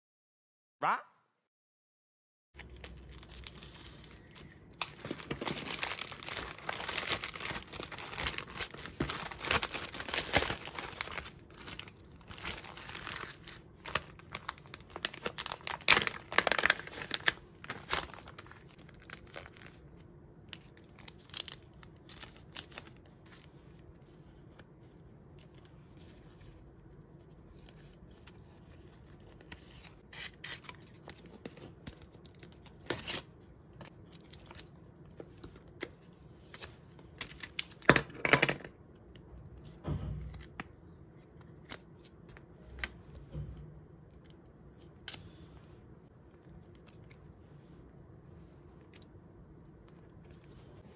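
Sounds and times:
plastic sleeves crinkling: 2.6 - 24.6
plastic mailer tearing: 4.8 - 19.7.

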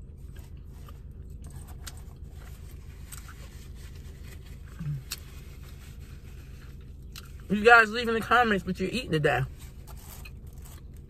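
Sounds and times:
closed-mouth hum: 0.0 - 11.0.

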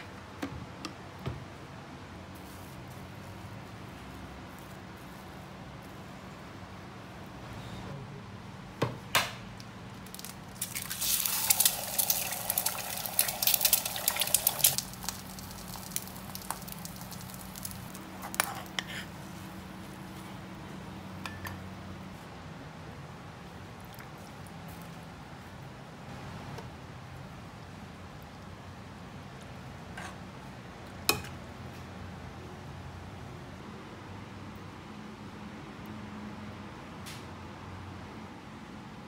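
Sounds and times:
egg sizzling in hot oil: 10.1 - 19.1.

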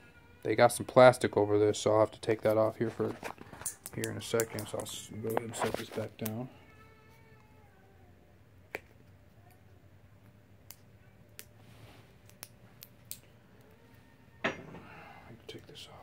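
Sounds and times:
soft rustle: 4.8 - 6.2, 11.5 - 12.2.

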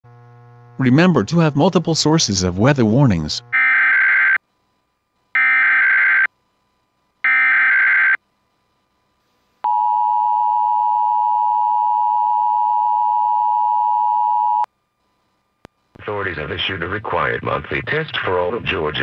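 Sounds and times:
screeching digital data bursts: 5.4 - 6.3.

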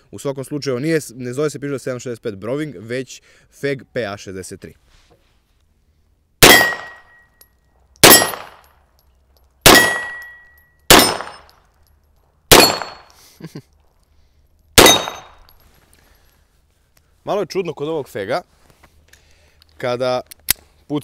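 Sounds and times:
pistol shots: 6.4 - 7.1, 8.0 - 8.7, 9.6 - 11.5, 12.5 - 13.1, 14.8 - 15.4.

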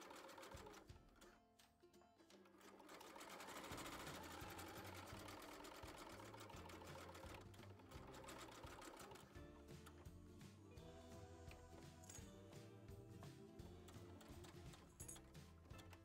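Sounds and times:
sewing machine stitching: 0.0 - 1.4, 2.3 - 12.4, 13.2 - 16.0.

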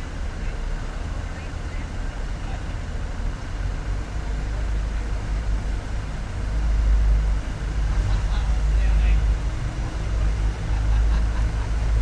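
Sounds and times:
diesel train rumbling: 0.0 - 12.0.

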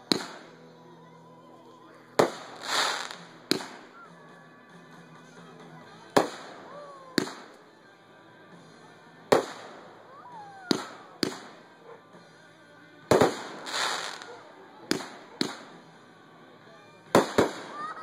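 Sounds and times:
firework shells bursting: 2.2 - 3.8, 13.1 - 14.3.

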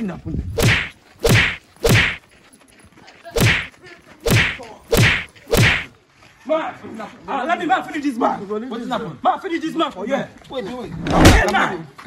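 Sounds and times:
punch swish and thud: 0.6 - 2.2, 3.4 - 5.9, 11.1 - 11.5.

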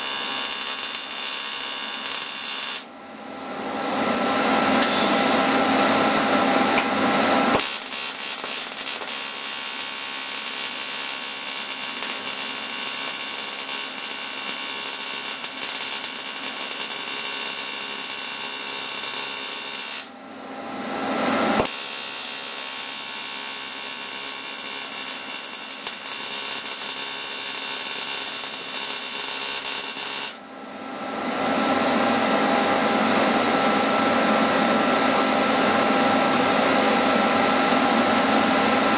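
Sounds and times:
welding arc buzzing and hissing: 0.0 - 2.9, 7.6 - 20.1, 21.6 - 30.4.

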